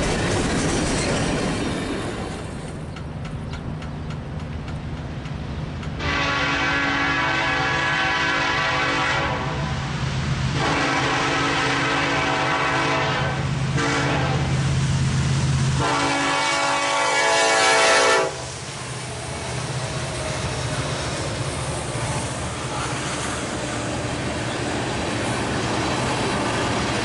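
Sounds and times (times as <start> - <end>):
diesel locomotive rumble: 0.0 - 27.0
train wheels on rails: 0.0 - 27.0
locomotive air horn blasts: 6.0 - 9.8, 10.5 - 14.5, 15.8 - 18.5.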